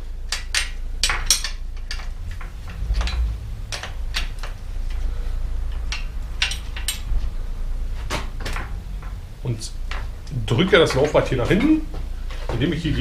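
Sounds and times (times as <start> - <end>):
spanner clicking on axle nut: 0.2 - 5.1, 5.7 - 7.2.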